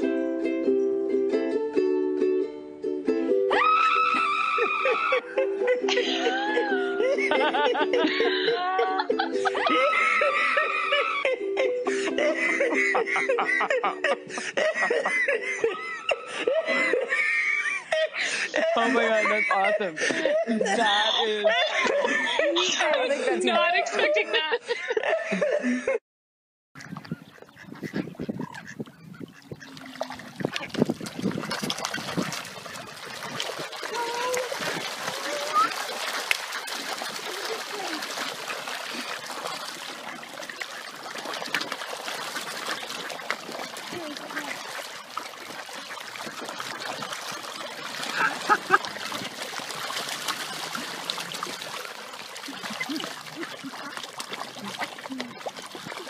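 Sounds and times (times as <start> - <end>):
water splashing: 3.5 - 5.3, 5.9 - 11.2, 26.8 - 56.0
ducks quacking: 17.1 - 20.0, 26.8 - 56.0.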